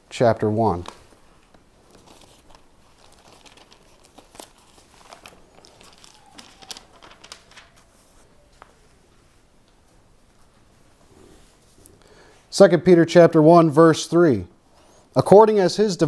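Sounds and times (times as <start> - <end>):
pages turning: 0.7 - 9.0.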